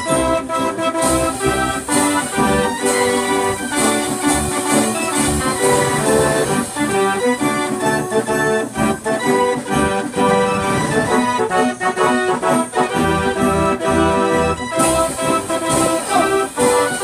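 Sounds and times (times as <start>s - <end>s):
band organ pipes: 0.0s - 17.0s
drum strokes: 1.0s - 12.6s.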